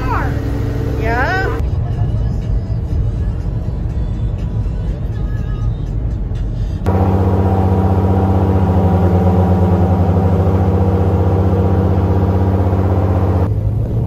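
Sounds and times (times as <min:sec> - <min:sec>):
airboat engine and propeller: 0:00.0 - 0:01.6, 0:06.9 - 0:14.0.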